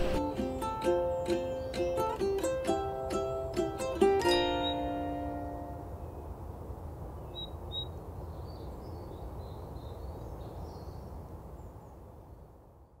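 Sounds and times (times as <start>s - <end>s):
birds chirping: 0.0s - 2.4s
low background noise: 0.0s - 13.0s.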